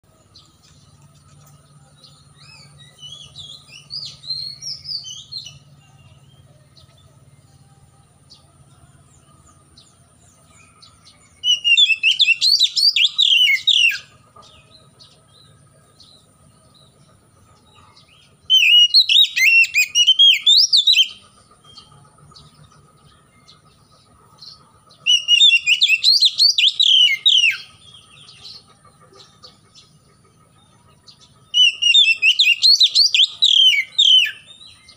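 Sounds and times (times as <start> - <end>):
soft bird twittering: 0.0 - 34.9
bird singing whistles: 2.3 - 6.4, 10.6 - 14.1, 18.5 - 21.9, 25.0 - 28.0, 31.5 - 34.9.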